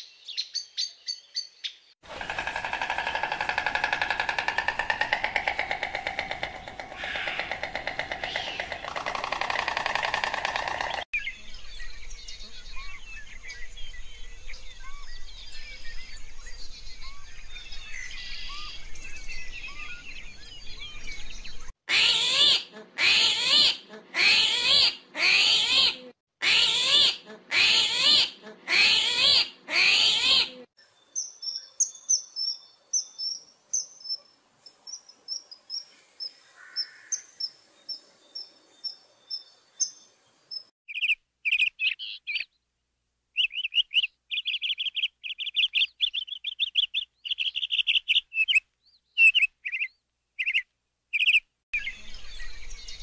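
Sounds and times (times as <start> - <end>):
kingfisher piping calls: 2.2 - 11.0
small chirping calls: 2.5 - 11.1, 30.9 - 42.6, 43.4 - 53.0.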